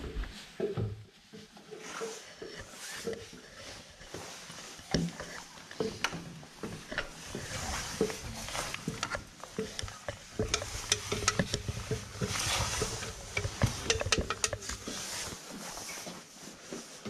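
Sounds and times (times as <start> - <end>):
rustling and scuffing: 0.0 - 17.0
clicks and knocks: 6.7 - 15.2.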